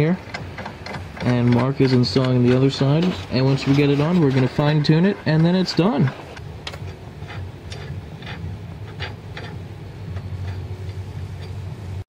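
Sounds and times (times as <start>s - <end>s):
low steady hum: 0.0s - 12.0s
wrench clicking: 0.2s - 2.8s.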